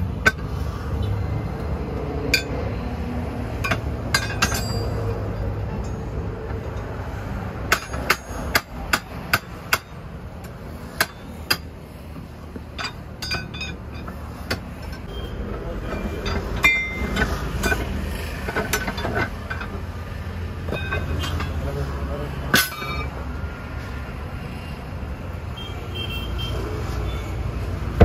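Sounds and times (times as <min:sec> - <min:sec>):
hammer striking metal: 0:03.6 - 0:06.0, 0:07.6 - 0:10.1, 0:22.5 - 0:23.2.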